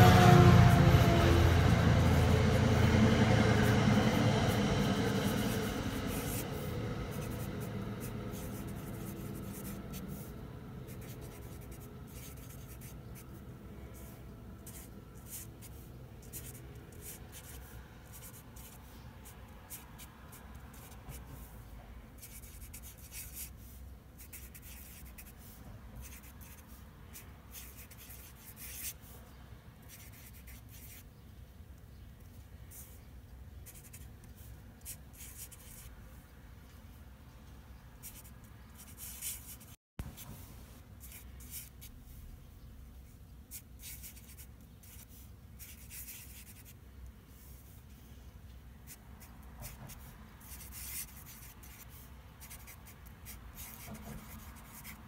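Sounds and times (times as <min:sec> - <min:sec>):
felt-tip marker scratching paper: 0:03.6 - 0:10.3, 0:10.9 - 0:13.3, 0:14.0 - 0:19.9, 0:22.2 - 0:29.1, 0:33.7 - 0:35.9, 0:38.0 - 0:39.8, 0:43.5 - 0:46.8, 0:48.9 - 0:55.0.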